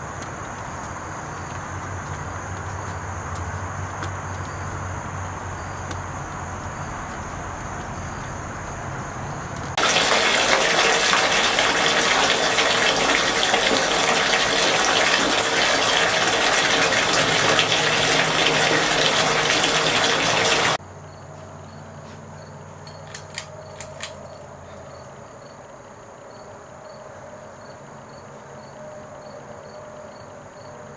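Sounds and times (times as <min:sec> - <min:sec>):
water gushing: 0:09.7 - 0:20.8
sharp clicks: 0:22.9 - 0:24.4.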